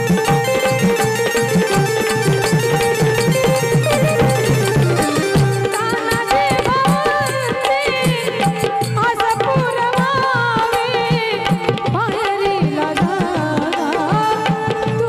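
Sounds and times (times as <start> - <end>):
held drone note: 0.0 - 6.4
steady drum beats: 0.0 - 14.3
woman singing folk song: 5.8 - 15.0.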